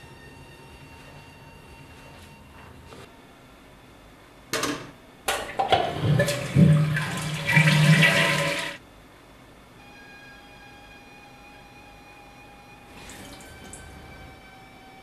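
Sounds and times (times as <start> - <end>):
toilet flushing: 5.4 - 8.8, 12.9 - 14.2.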